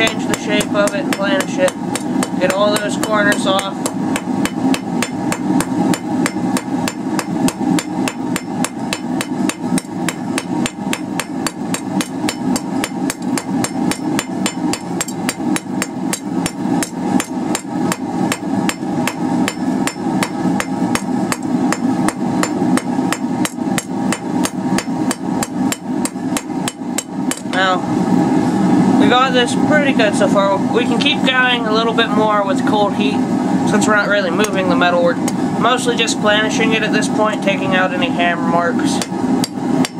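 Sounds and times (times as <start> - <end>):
hammer striking steel on anvil: 0.0 - 27.6, 39.0 - 39.9.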